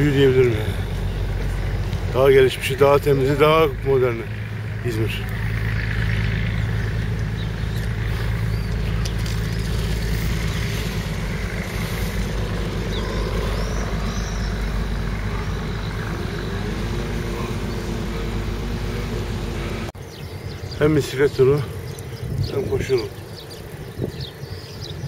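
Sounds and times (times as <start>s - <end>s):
vehicle engine rising in pitch: 0.0s - 20.0s
road traffic rumble: 0.0s - 25.0s.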